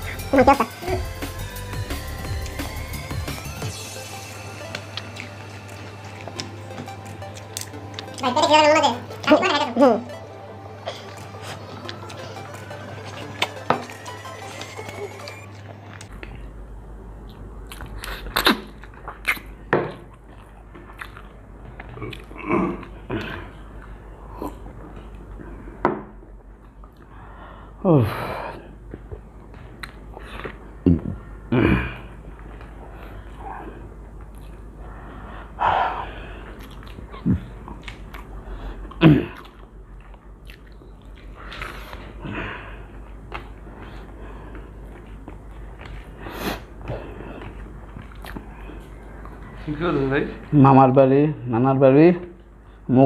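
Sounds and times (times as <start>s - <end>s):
people chewing food: 0.0s - 9.4s, 10.1s - 50.6s
chewing with wet mouth smacks: 17.2s - 25.3s, 36.4s - 42.1s, 47.4s - 49.5s.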